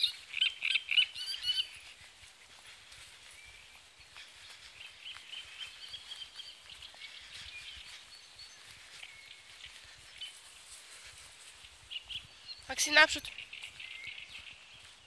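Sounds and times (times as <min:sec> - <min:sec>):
birds chirping and trilling: 0:00.0 - 0:15.0
outdoor background noise: 0:00.0 - 0:15.0.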